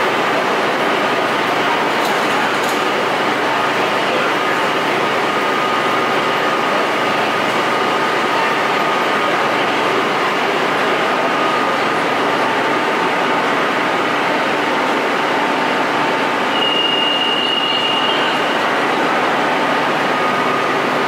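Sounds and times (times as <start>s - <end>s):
train equipment hum and hiss: 0.0s - 21.0s
high warning tone: 16.1s - 21.0s.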